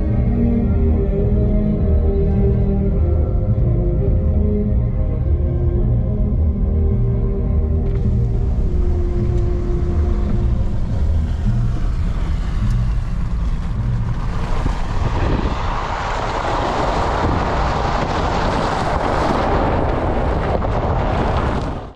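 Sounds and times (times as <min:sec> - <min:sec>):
car engine driving: 0:00.0 - 0:21.9
wind rushing over microphone: 0:07.9 - 0:21.9.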